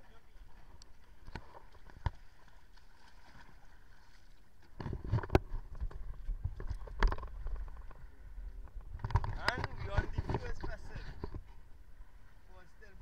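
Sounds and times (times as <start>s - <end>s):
knocks and thumps on wooden boat: 4.7s - 8.0s, 8.7s - 11.6s.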